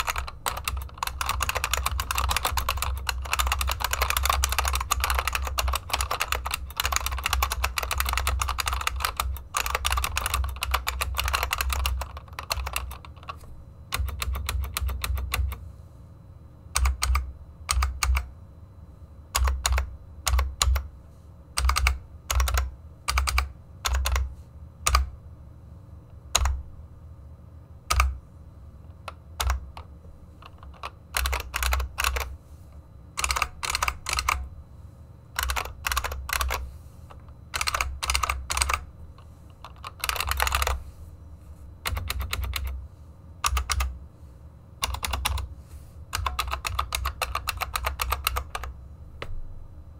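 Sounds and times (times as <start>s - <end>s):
keyboard typing: 0.0s - 15.6s, 16.8s - 18.3s, 19.4s - 20.9s, 21.6s - 24.3s, 24.9s - 25.1s, 26.3s - 26.6s, 27.9s - 28.2s, 28.9s - 32.3s, 33.2s - 34.5s, 35.4s - 40.8s, 41.8s - 42.8s, 43.4s - 44.0s, 44.8s - 45.5s, 46.1s - 48.7s.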